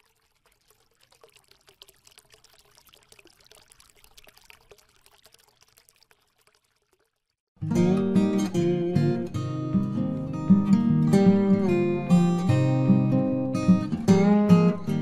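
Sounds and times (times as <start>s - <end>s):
faint trickling patter: 0.0s - 7.4s.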